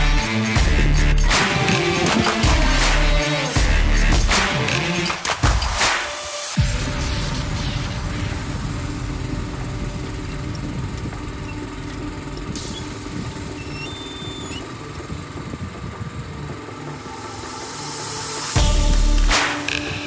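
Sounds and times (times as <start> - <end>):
engine running steadily: 6.7 - 20.0.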